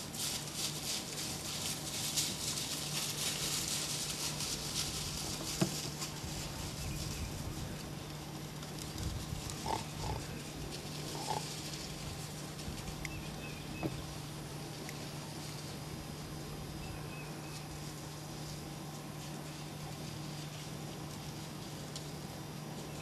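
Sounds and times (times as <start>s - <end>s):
background hiss: 0.0s - 23.0s
hogs squealing: 9.6s - 10.4s, 11.1s - 11.5s.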